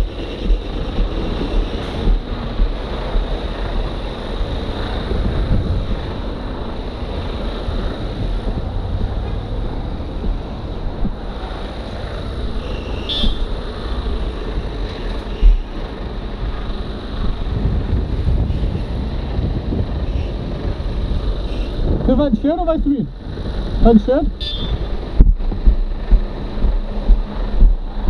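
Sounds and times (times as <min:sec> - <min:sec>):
wind buffeting microphone: 0:00.0 - 0:12.6, 0:13.2 - 0:28.0.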